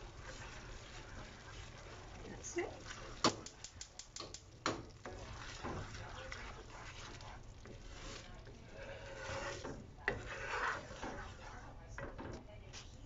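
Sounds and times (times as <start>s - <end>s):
wooden spoon scraping skillet: 0.0s - 13.0s.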